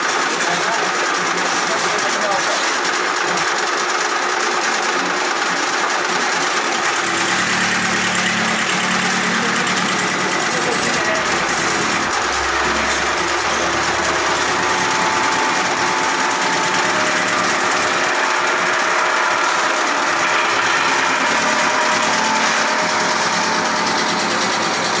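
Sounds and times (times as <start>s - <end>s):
wood chipper chipping wood: 0.0s - 25.0s.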